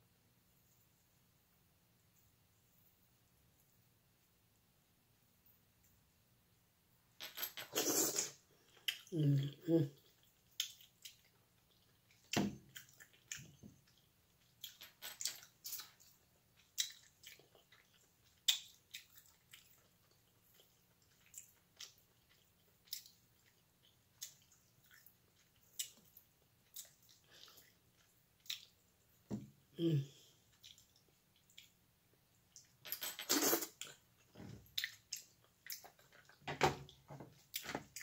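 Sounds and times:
crab shell cracking and chewing: 0:10.0 - 0:28.8.

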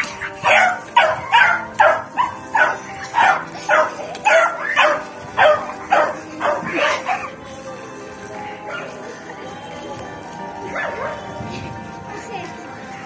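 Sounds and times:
puppy barking excited yips: 0:00.0 - 0:07.3.

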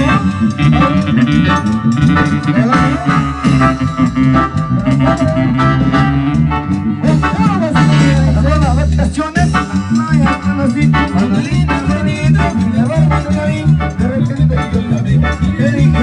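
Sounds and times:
loud dance music: 0:00.0 - 0:08.6.

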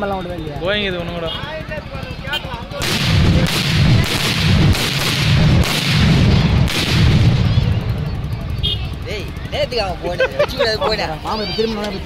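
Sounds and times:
firecrackers crackling: 0:02.7 - 0:09.6.

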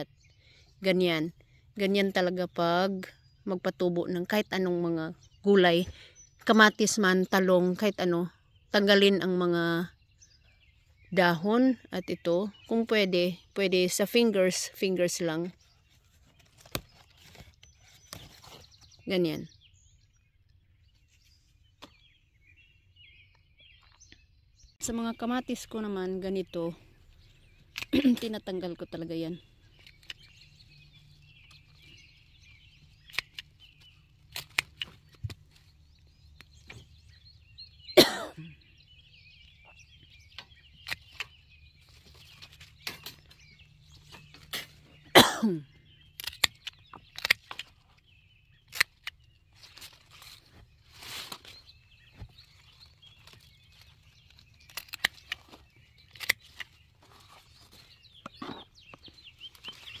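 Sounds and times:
foliage rustling: 0:15.1 - 0:19.1, 0:46.2 - 1:00.0
pruning shears snipping: 0:16.6 - 0:18.4, 0:33.0 - 0:35.5, 0:44.1 - 0:44.8, 0:46.2 - 0:47.8, 0:48.6 - 0:50.4, 0:53.2 - 0:56.8.

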